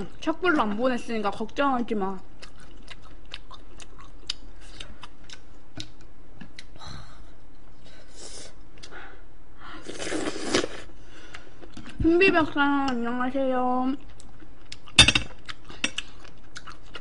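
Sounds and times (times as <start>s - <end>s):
chewing: 2.4s - 6.7s, 14.0s - 17.0s.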